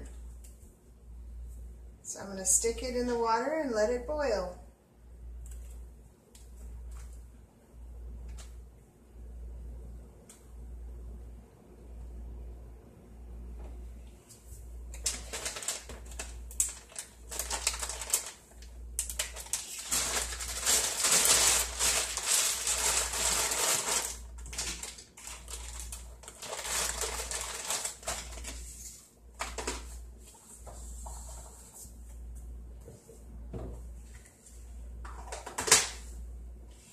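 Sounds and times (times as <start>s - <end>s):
plastic bag crinkling: 14.9s - 29.9s.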